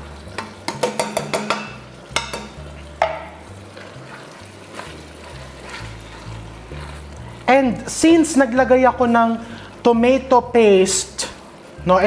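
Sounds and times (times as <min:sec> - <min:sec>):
food sizzling in a pot: 0:00.0 - 0:12.0
spoon knocking against pot: 0:00.4 - 0:03.4
wooden spoon stirring: 0:03.6 - 0:08.8.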